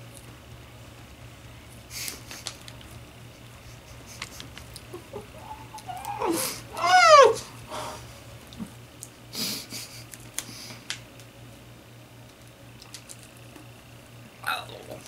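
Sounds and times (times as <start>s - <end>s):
woman groaning: 5.3s - 7.5s.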